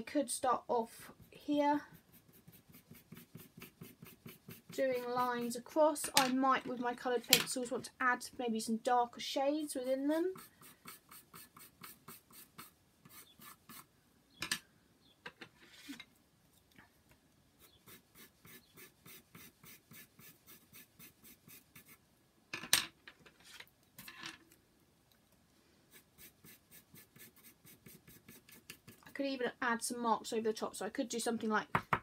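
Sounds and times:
pencil scratching on paper: 1.1 - 5.6, 9.8 - 13.9, 17.6 - 22.0, 25.9 - 29.2
pencils knocking on table: 6.0 - 6.4.

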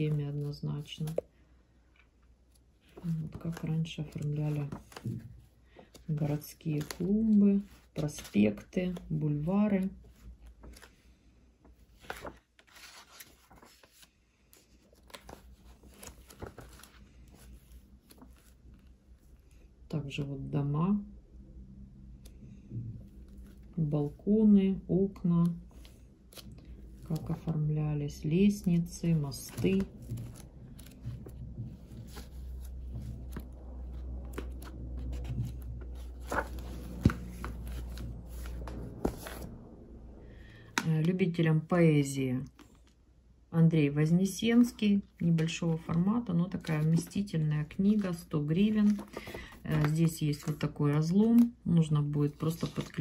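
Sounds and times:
book pages turning: 2.4 - 19.6, 25.4 - 27.7, 28.3 - 39.7, 44.6 - 53.0.

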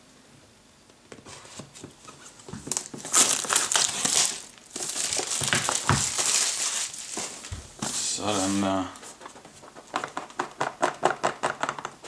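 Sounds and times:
plastic shrink-wrap crinkling: 2.0 - 10.4.

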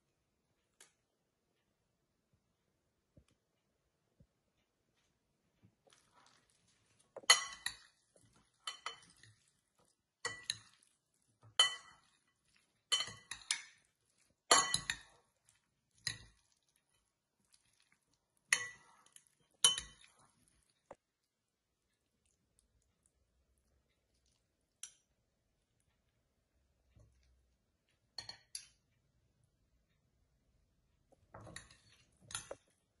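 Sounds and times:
metal spoons clinking on glass bowl: 7.2 - 9.5, 10.2 - 15.4, 16.0 - 17.0, 18.5 - 20.3, 31.4 - 32.8.

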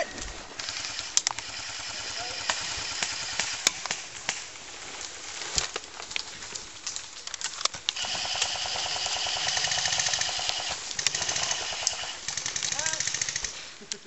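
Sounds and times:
airsoft gun firing rapidly: 0.6 - 4.0, 8.0 - 13.6
sharp clicks and snaps: 1.0 - 1.5, 2.5 - 8.6, 9.8 - 14.0.

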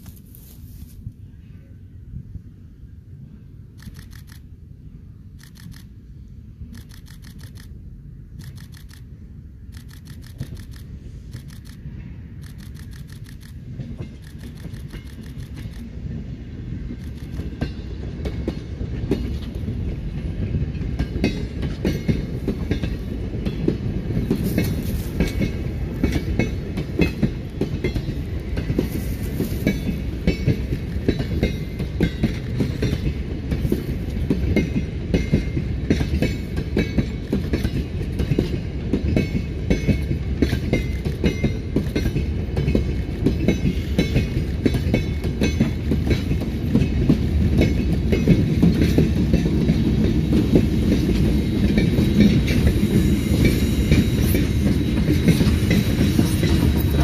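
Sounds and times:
train carriages rolling past: 0.0 - 57.0
wheels clicking over rail joints: 9.7 - 16.2, 16.9 - 57.0.

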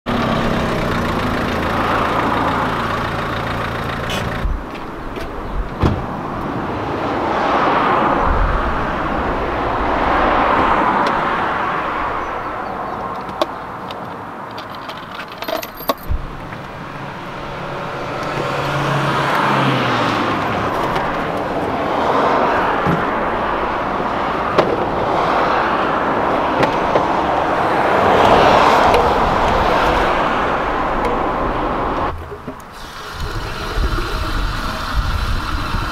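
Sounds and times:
cars passing: 0.1 - 35.9
car door and roof box clicks: 4.1 - 6.1.

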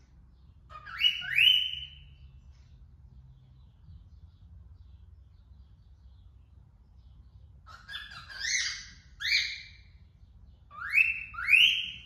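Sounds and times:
cockatiel whistling: 0.7 - 2.0, 10.7 - 12.0.

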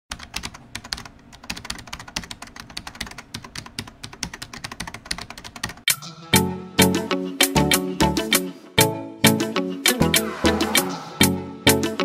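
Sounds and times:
keyboard typing clicks: 0.1 - 5.9.

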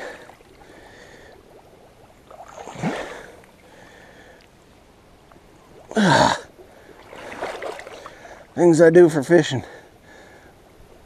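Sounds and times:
creek water rushing: 0.0 - 10.9
man grunting with effort: 5.9 - 6.5.

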